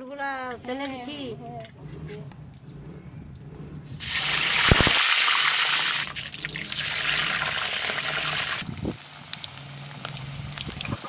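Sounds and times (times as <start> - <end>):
potatoes sizzling in hot oil: 4.0 - 11.0.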